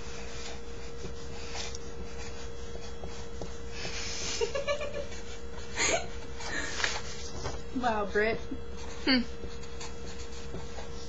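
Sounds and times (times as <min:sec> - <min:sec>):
electrical hum and hiss: 0:00.0 - 0:11.0.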